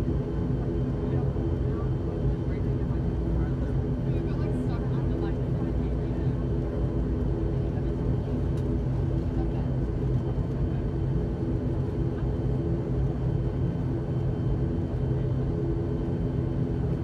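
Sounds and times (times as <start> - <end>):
turboprop engine droning: 0.0 - 17.0.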